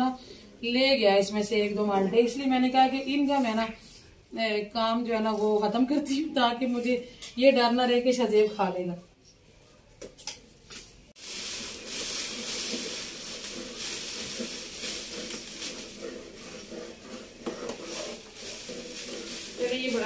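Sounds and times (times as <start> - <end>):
spoon scraping metal pot: 12.3 - 20.0.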